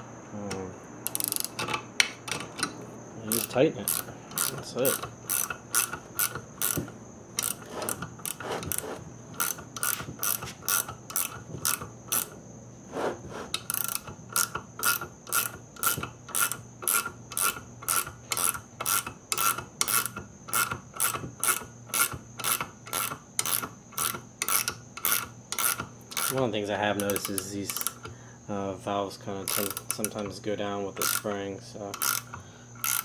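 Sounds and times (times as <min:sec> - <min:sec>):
ratcheting wrench clicking: 0:01.0 - 0:08.8, 0:09.4 - 0:12.4, 0:13.6 - 0:28.1, 0:29.4 - 0:30.3, 0:31.0 - 0:33.0.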